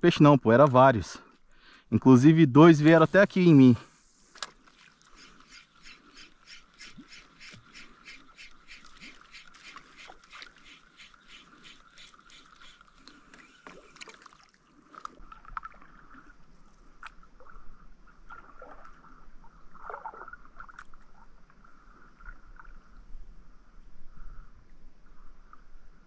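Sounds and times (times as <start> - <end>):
paddle splashing in water: 4.1 - 21.3.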